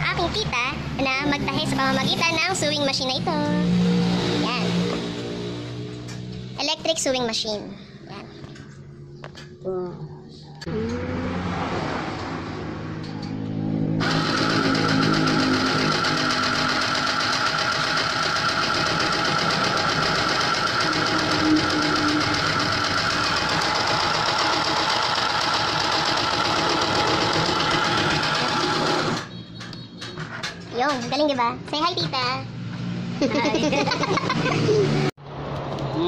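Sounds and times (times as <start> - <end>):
electric sewing machine running: 14.0 - 29.2.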